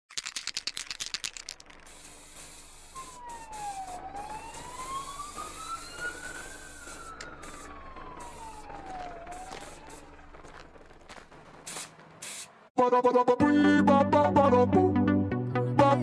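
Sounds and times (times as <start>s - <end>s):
fast rattle: 0.1s - 3.9s, 6.2s - 12.5s
emergency siren wailing: 2.7s - 11.5s.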